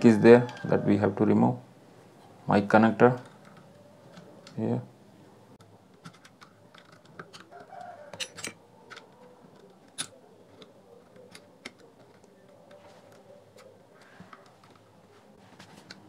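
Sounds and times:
rooster crowing: 0:00.0 - 0:01.1, 0:07.4 - 0:09.5.

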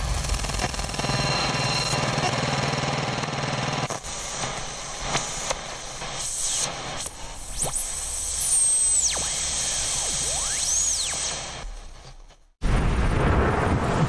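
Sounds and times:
fast-rattling static: 0:00.0 - 0:12.3.

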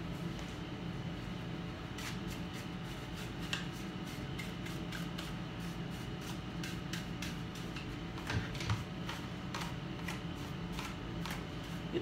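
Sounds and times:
steady room hum: 0:00.0 - 0:12.0
brush scrubbing: 0:01.9 - 0:08.3.

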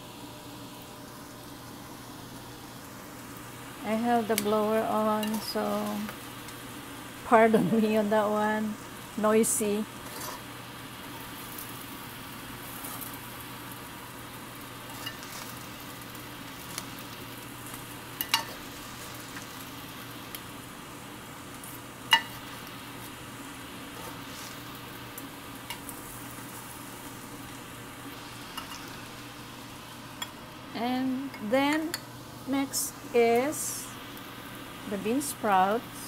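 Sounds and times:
rice sizzling in a pan: 0:00.0 - 0:36.0
metal spoons clinking on pan: 0:14.9 - 0:15.3, 0:18.2 - 0:18.6, 0:22.1 - 0:22.4.

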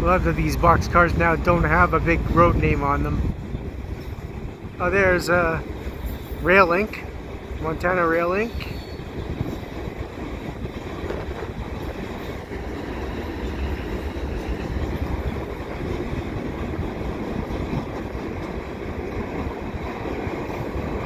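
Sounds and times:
freight train wheels on rails: 0:00.0 - 0:21.0.

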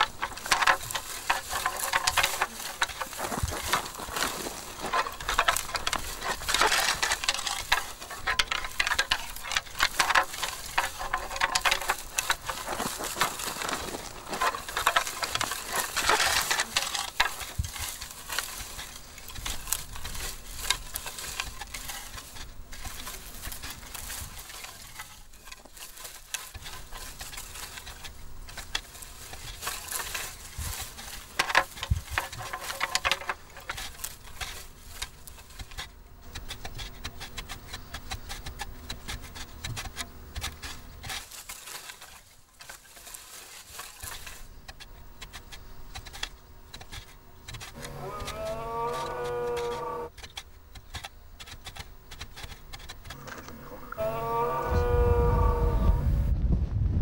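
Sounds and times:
antlers clashing: 0:00.0 - 0:56.0
rustling scrub: 0:00.0 - 0:56.3.

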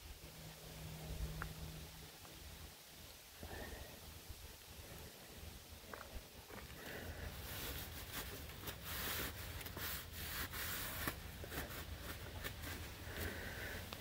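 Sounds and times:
rubbing and scuffing: 0:07.3 - 0:13.5.

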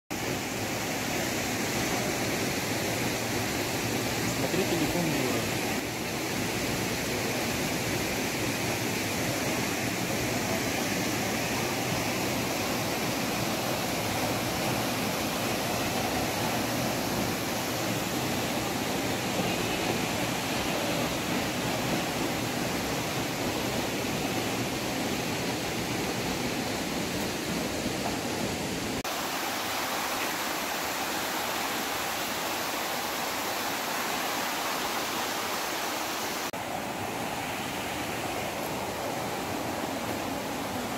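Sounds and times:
stream water falling over rocks: 0:00.1 - 0:40.9.

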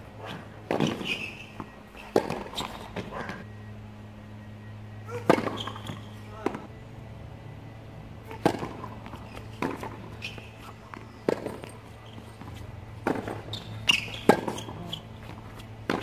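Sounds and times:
tennis ball struck by racquets: 0:00.2 - 0:03.4, 0:05.1 - 0:06.7, 0:08.2 - 0:16.0
tennis ball bouncing on hard court: 0:00.3 - 0:03.4, 0:05.1 - 0:06.7, 0:08.3 - 0:16.0.

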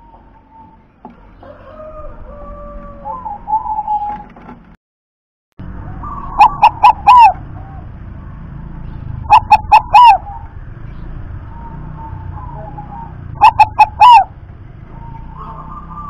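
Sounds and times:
dove cooing: 0:00.0 - 0:04.3, 0:05.9 - 0:08.0, 0:09.2 - 0:10.6, 0:11.4 - 0:16.0.

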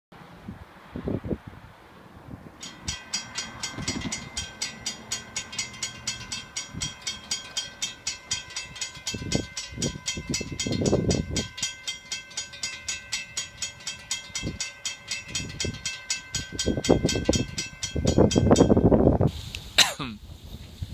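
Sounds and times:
wind rumbling on microphone: 0:00.2 - 0:20.9
railroad crossing warning bell: 0:02.6 - 0:19.3.

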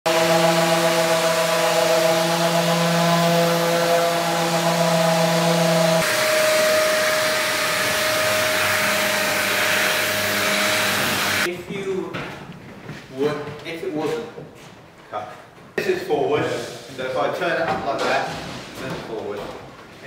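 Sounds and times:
dust extractor rushing air: 0:00.1 - 0:11.5
electric sanders whining: 0:00.1 - 0:11.5.

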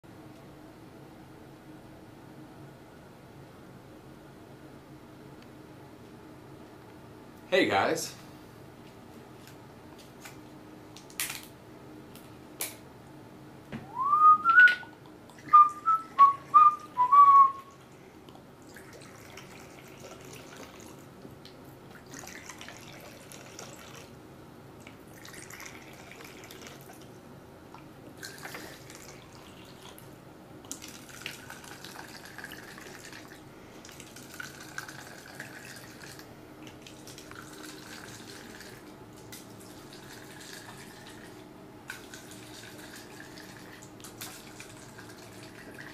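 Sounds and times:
whistle notes: 0:13.9 - 0:14.9, 0:15.5 - 0:17.7
liquid trickling into glasses: 0:18.6 - 0:21.0, 0:22.0 - 0:24.1, 0:25.1 - 0:27.0, 0:30.8 - 0:36.2, 0:36.8 - 0:38.8, 0:39.6 - 0:41.3.

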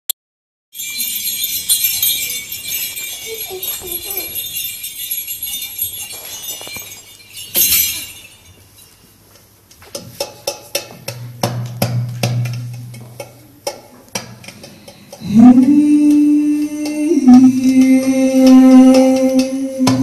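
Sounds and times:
frame drum jingles rattling: 0:00.8 - 0:15.2
drum strokes: 0:10.0 - 0:20.0.

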